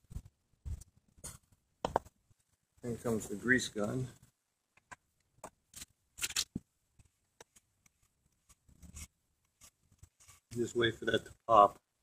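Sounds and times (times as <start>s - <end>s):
grease gun metallic clicks and scrapes: 4.8s - 10.9s.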